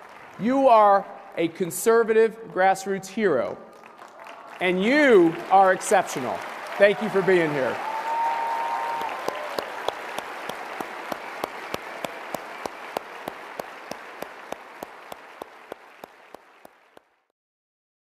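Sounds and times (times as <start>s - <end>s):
audience applauding: 0.0s - 1.4s, 3.7s - 17.2s
sharp rhythmic claps: 3.6s - 17.2s.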